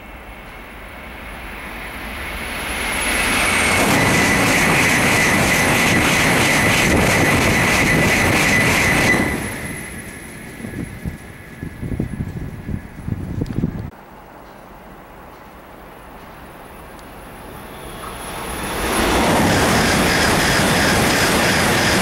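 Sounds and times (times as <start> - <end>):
high-speed train passing: 0.0 - 22.0.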